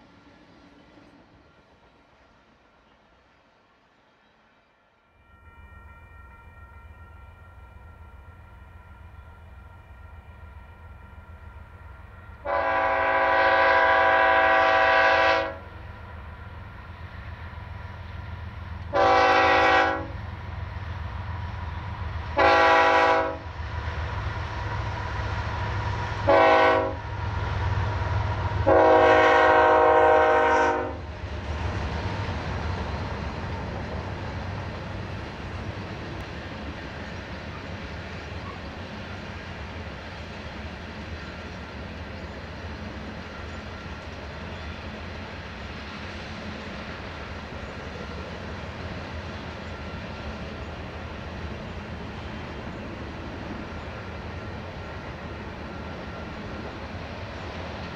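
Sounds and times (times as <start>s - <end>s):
locomotive air horn blasts: 12.3s - 15.9s, 18.9s - 20.2s, 22.4s - 23.5s, 26.2s - 27.1s, 28.6s - 31.0s.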